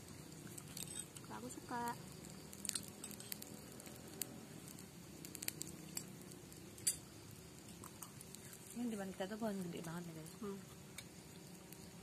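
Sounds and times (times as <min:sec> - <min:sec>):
faint low background hum: 0:00.0 - 0:12.0
small clicks of eating: 0:00.1 - 0:07.0, 0:07.6 - 0:12.0
soft rustles of food: 0:07.6 - 0:12.0.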